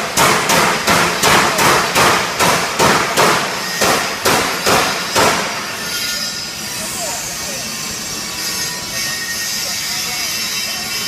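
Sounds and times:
loud ringing knocks: 0.0s - 5.8s.

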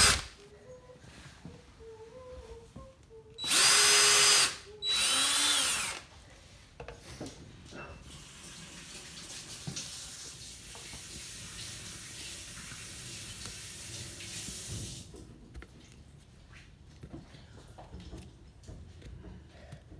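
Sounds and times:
cordless drill motor winding down: 0.0s - 0.2s, 3.4s - 6.0s.

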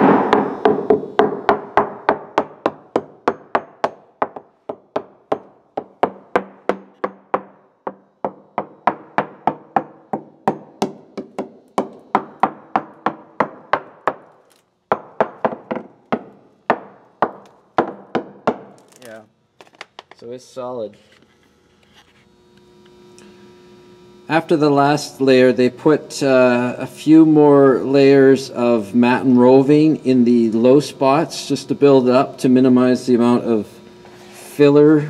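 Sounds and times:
hammer tapping on fiberglass hull: 0.0s - 14.3s, 14.9s - 18.8s.

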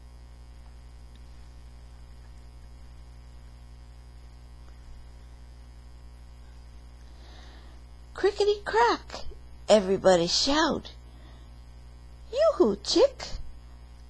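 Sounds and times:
electrical mains hum: 0.0s - 14.0s
faint ticks: 1.9s - 3.0s.

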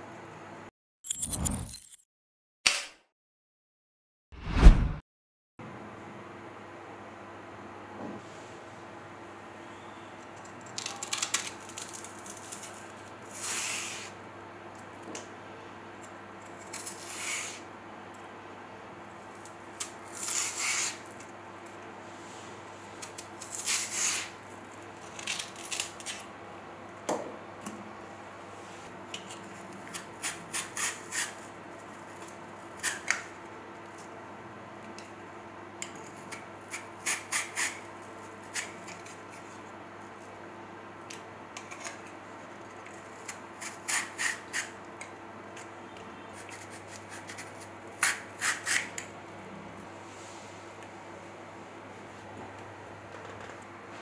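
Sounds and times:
knife scraping green banana: 19.8s - 21.2s, 23.0s - 24.4s, 29.8s - 31.5s, 35.9s - 39.6s, 42.9s - 44.8s, 46.2s - 49.0s.

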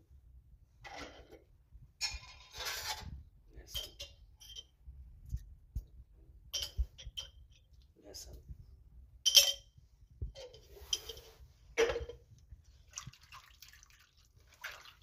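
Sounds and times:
dishes and utensils clinking: 6.5s - 7.6s, 9.3s - 9.8s, 10.4s - 12.2s.

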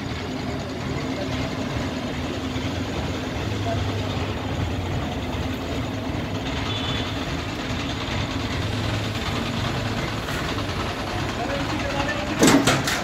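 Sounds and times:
diesel engine droning: 0.0s - 13.0s.

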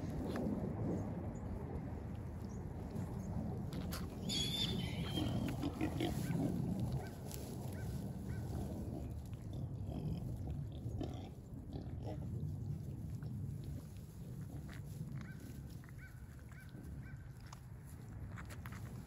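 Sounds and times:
piglet squealing: 4.3s - 5.7s.

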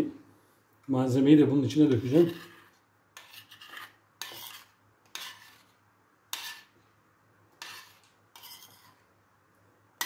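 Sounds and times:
metal spoon scraping a steel pot: 1.9s - 6.8s, 7.5s - 9.0s.

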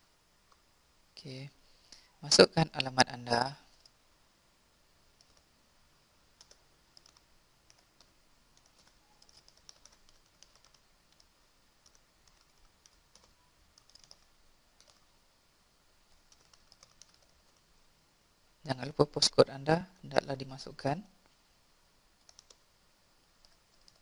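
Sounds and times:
typing on computer keyboard: 5.2s - 5.5s, 6.4s - 15.1s, 16.1s - 17.6s, 22.2s - 22.6s, 23.4s - 24.0s.

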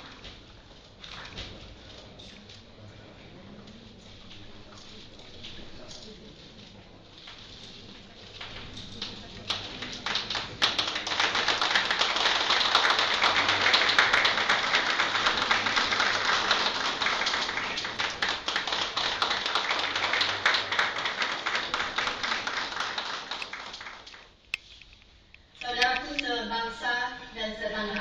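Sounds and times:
small group applauding: 8.4s - 24.4s.

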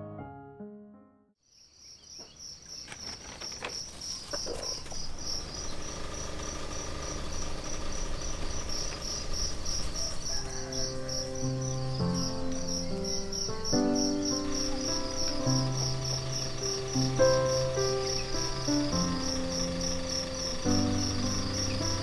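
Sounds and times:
soft music: 0.0s - 1.3s, 10.3s - 22.0s
insects chirping: 1.4s - 22.0s.

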